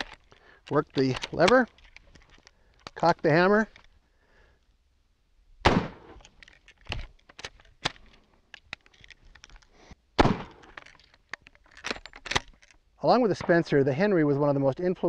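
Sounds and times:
rifle lever clicking: 0:00.0 - 0:03.1, 0:10.4 - 0:12.8
rifle shots: 0:05.6 - 0:06.2, 0:10.2 - 0:10.7.

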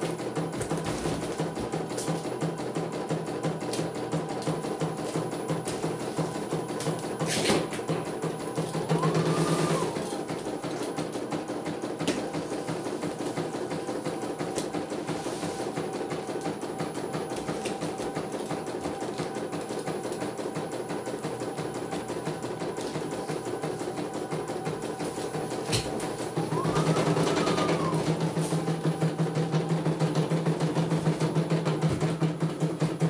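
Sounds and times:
motor hum: 0:08.0 - 0:11.0, 0:24.2 - 0:33.0.

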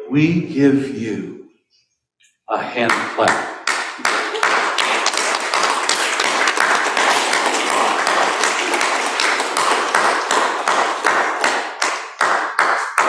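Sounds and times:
sharp claps: 0:02.6 - 0:13.0
crowd applauding: 0:02.8 - 0:13.0.

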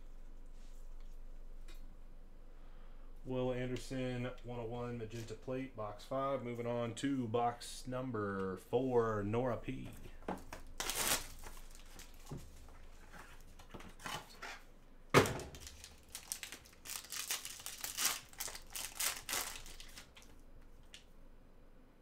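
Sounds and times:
plastic wrapper crinkling: 0:10.5 - 0:12.8, 0:15.5 - 0:21.0
plastic shrink-wrap tearing: 0:10.7 - 0:12.3, 0:15.5 - 0:20.3.

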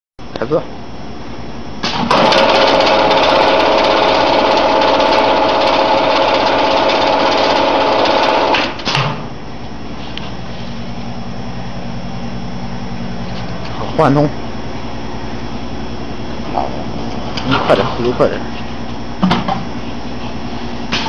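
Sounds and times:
steady machine hum: 0:00.2 - 0:21.0
filling machine rattling: 0:01.8 - 0:09.1.

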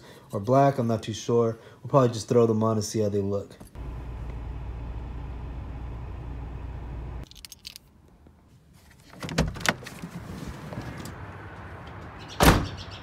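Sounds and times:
steady low hum: 0:03.8 - 0:07.2.

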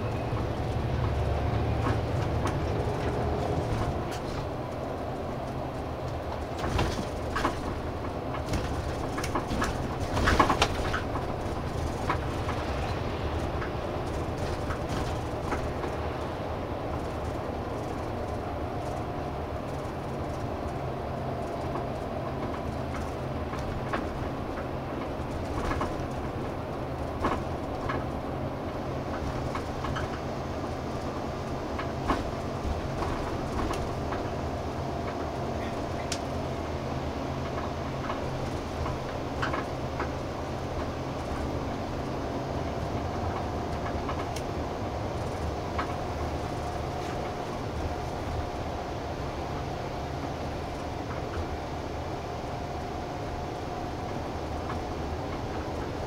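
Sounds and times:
bus engine hum: 0:00.0 - 0:56.0
road rumble: 0:00.0 - 0:56.0.

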